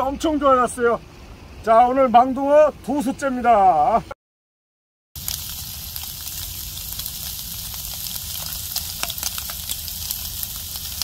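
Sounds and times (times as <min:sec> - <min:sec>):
fish sizzling in a pan: 0:05.2 - 0:11.0.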